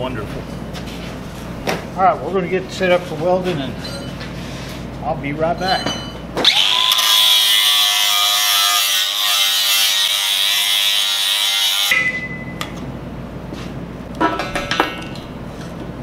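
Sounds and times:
power tool motor running: 6.4 - 12.0.

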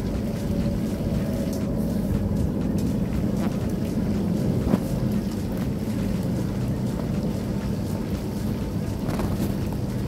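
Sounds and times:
low steady rumble: 0.0 - 10.0.

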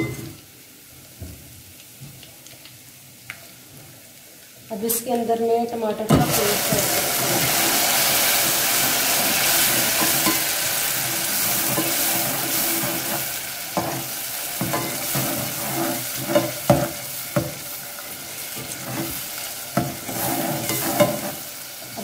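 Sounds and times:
paste sizzling in hot oil: 6.1 - 22.0
metal spoon scraping a pot: 11.5 - 16.9, 19.8 - 21.5.

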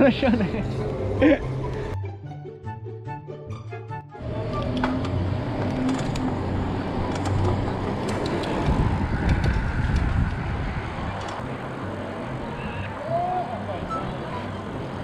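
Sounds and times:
bike tyres on asphalt: 4.2 - 11.5
bike clicks and rattles: 4.6 - 11.4
wind buffeting microphone: 6.3 - 11.5.

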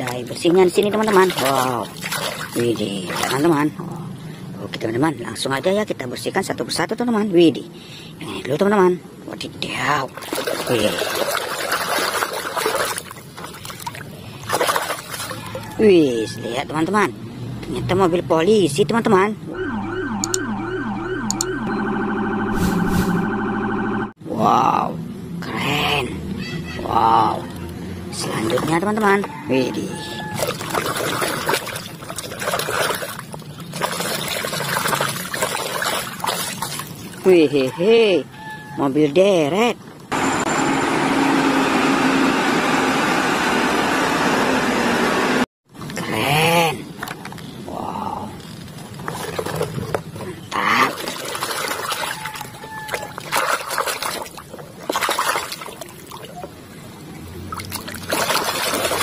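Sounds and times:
muddy water splashing in a tub: 0.0 - 4.0, 9.6 - 17.0, 27.5 - 38.8, 47.7 - 59.0
hand splashing in water: 50.9 - 56.4, 57.6 - 59.0.

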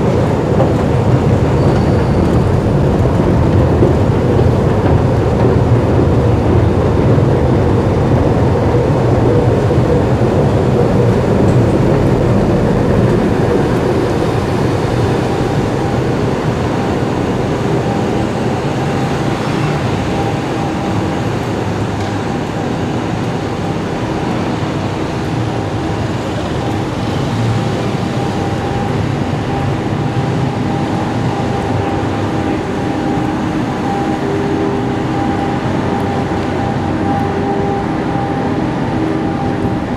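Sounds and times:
city traffic noise: 0.0 - 39.9
escalator rumble: 0.0 - 39.9.

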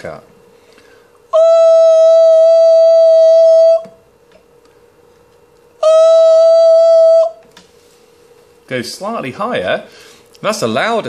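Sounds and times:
man singing high steady note: 1.3 - 4.0, 5.8 - 7.4.

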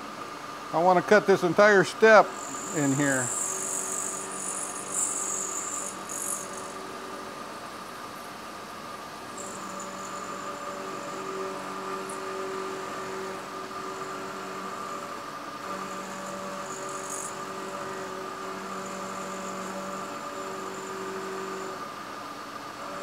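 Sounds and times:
milling machine cutting metal: 2.2 - 7.5, 9.3 - 22.0.

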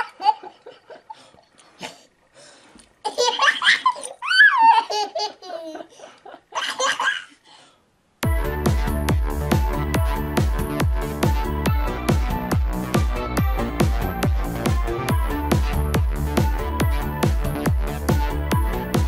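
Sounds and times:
baby belly-laughing: 3.0 - 7.4
electronic dance music: 8.2 - 19.0.

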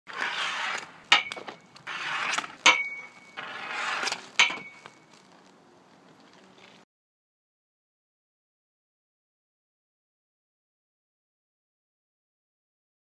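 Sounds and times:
hockey stick cracking puck: 0.1 - 5.1
skate wheels and puck rolling: 0.1 - 6.8.

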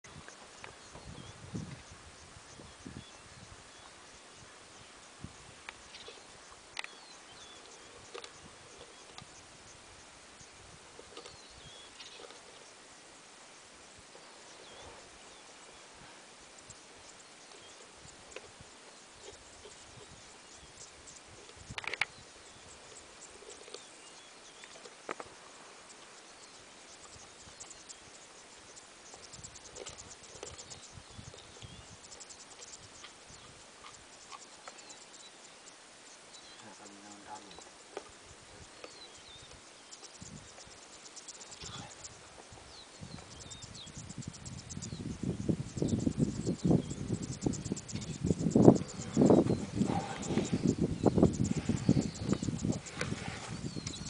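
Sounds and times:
steady hiss: 0.1 - 54.0
small ticks and clicks: 5.0 - 9.8, 10.4 - 12.8, 16.6 - 54.0
high chirps: 38.6 - 54.0.

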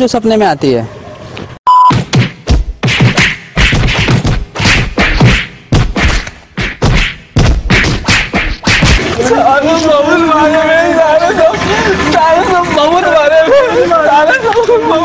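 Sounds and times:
short beep: 1.7 - 2.0
whacks and thuds of beating: 1.9 - 9.2.

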